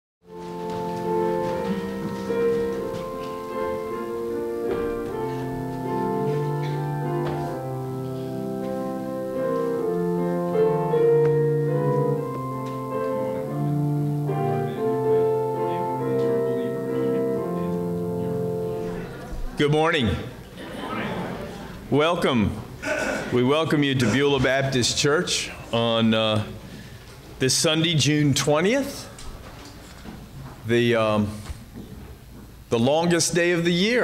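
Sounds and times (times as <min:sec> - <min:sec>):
keyboard chords and bass line: 0:00.3 - 0:19.2.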